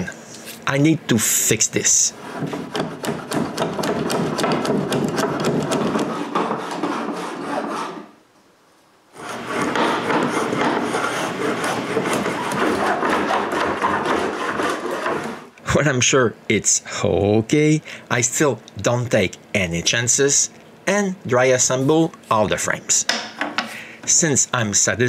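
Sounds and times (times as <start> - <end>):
router plane scraping wood: 2.1 - 8.2, 9.1 - 15.5.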